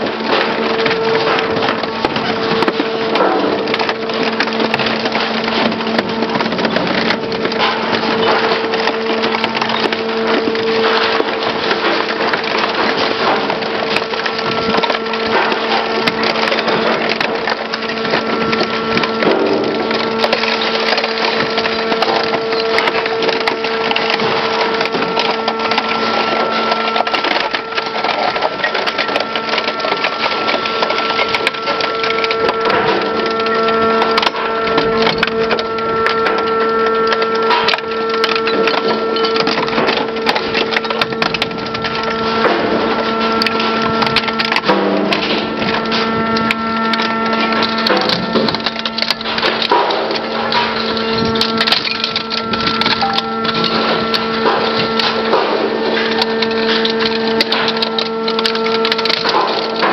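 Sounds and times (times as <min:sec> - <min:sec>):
shredder crunching sheet metal: 0:00.0 - 0:59.9
steady machine hum: 0:00.0 - 0:59.9
thin whine: 0:30.4 - 0:59.9.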